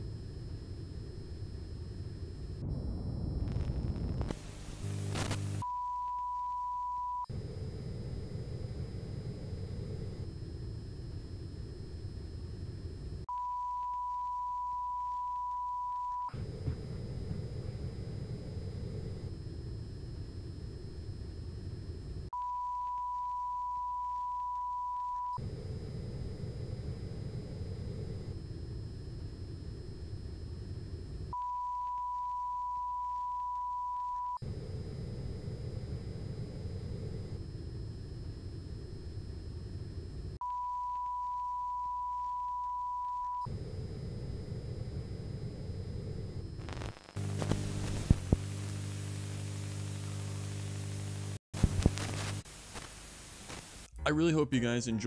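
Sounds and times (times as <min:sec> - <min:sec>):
high electrical whine: 0:00.0 - 0:54.0
low hum with static: 0:00.0 - 0:55.0
noisy camera ambience: 0:51.6 - 0:53.9.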